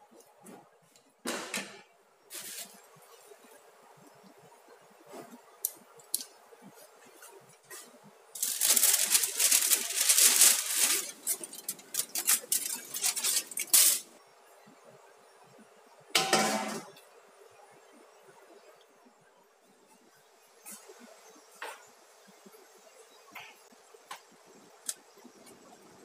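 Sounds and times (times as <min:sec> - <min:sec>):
aluminium foil crinkling: 0:02.3 - 0:02.8, 0:08.4 - 0:14.1
metal tray clanking: 0:16.2 - 0:16.9.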